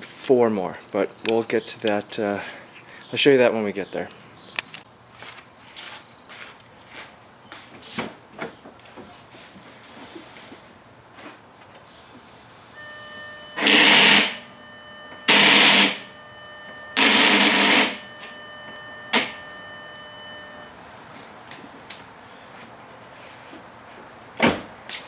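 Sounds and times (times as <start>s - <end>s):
steady high tone: 12.8s - 20.8s
loud bursts of noise: 13.6s - 14.6s, 15.2s - 16.2s, 16.9s - 18.3s.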